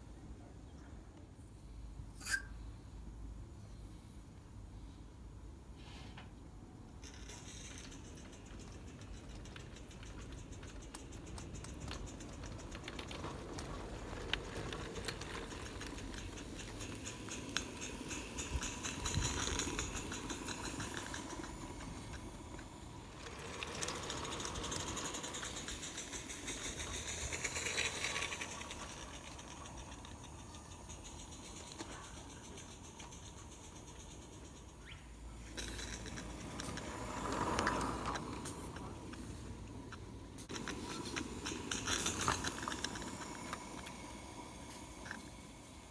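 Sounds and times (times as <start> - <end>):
model steam locomotive chattering: 6.4 - 45.9.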